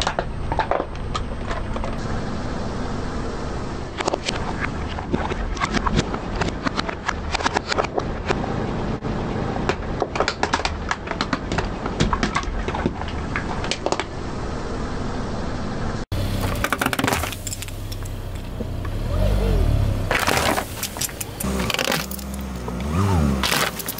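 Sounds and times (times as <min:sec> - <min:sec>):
plastic toys cracking under tyre: 0:04.0 - 0:08.4, 0:09.7 - 0:14.1, 0:16.5 - 0:17.8, 0:20.1 - 0:23.9.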